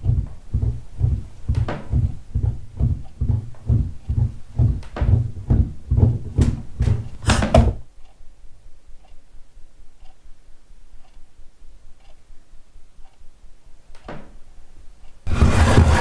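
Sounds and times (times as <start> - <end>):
clock ticking faintly: 0.0 - 7.2, 7.8 - 14.2, 14.8 - 15.3
rapid low thumps: 0.0 - 7.9.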